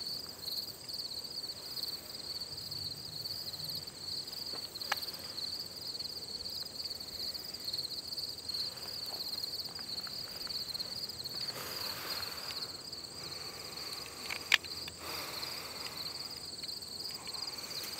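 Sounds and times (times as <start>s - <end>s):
high-pitched insect chorus: 0.0s - 17.9s.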